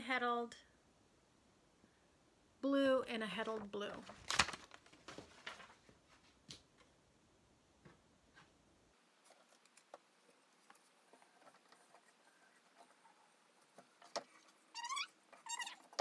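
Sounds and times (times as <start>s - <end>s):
short rising squeaks: 14.4s - 16.0s.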